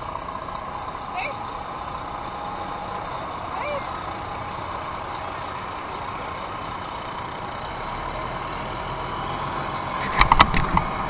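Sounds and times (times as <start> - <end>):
fire truck engine running: 0.0 - 11.0.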